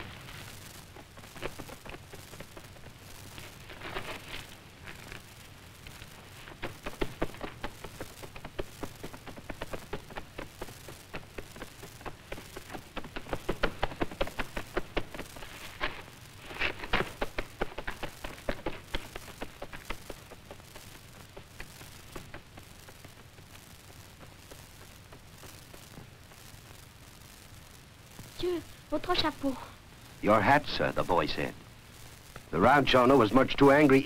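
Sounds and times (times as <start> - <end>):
horses galloping: 0.0 - 27.0.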